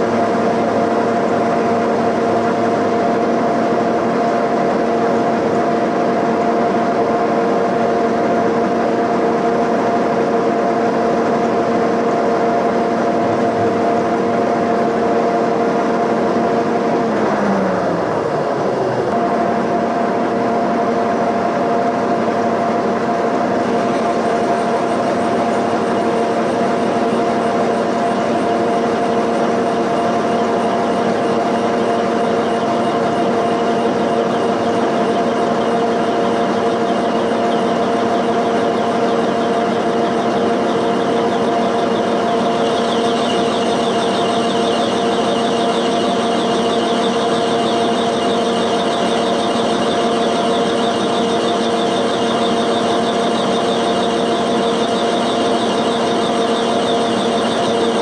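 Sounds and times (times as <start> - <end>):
milling machine motor hum: 0.0 - 58.0
cutter chatter buzz: 13.0 - 15.1
cutter rasping through metal: 23.7 - 58.0.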